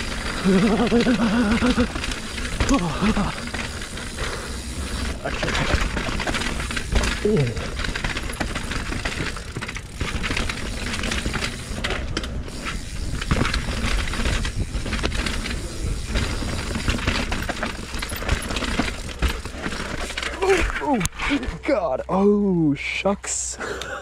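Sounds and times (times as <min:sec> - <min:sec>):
bike clattering and rattling: 0:00.0 - 0:21.8
tyres and wind rushing: 0:08.1 - 0:21.6.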